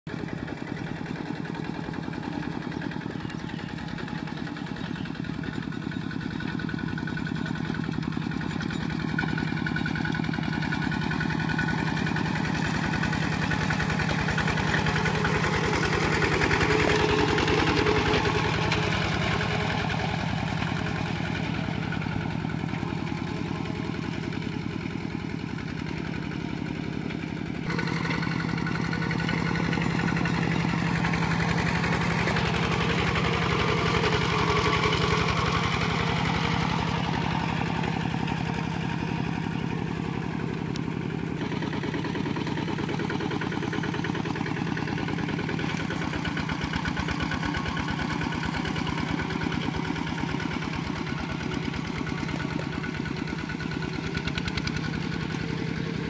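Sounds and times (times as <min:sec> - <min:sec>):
diesel engine chugging: 0:00.1 - 0:56.0.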